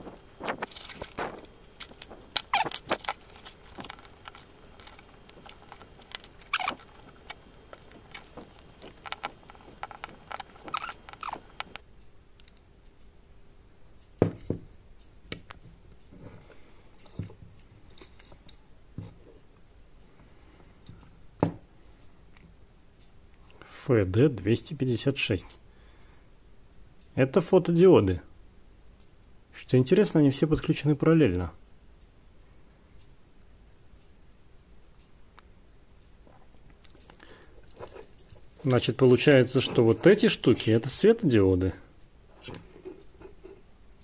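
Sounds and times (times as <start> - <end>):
screwdriver and tweezers clicking: 0.1 - 11.8.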